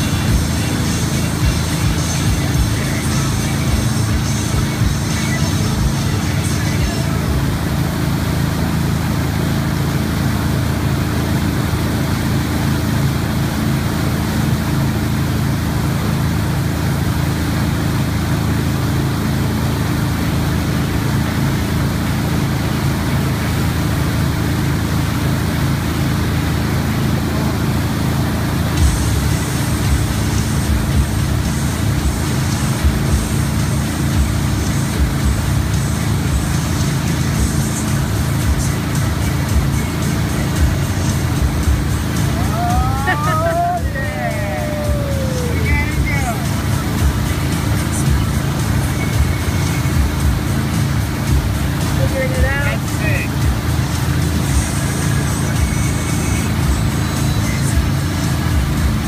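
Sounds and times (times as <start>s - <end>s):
boat engine running: 0.0s - 59.0s
churning wake rushing: 0.0s - 59.0s.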